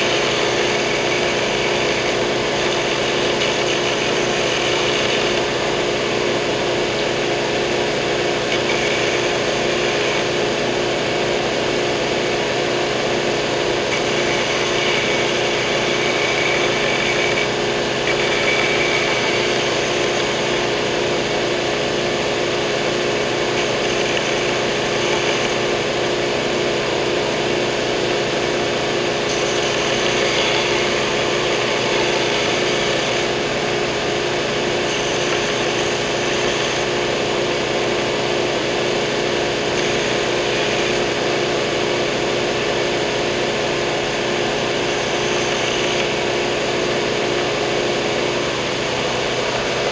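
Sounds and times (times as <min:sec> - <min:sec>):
belt sander humming: 0:00.0 - 0:49.9.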